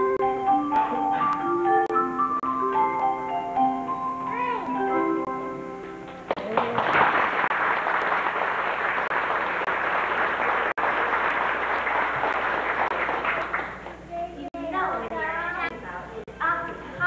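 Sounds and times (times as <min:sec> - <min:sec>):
audience applauding: 0:06.1 - 0:14.0.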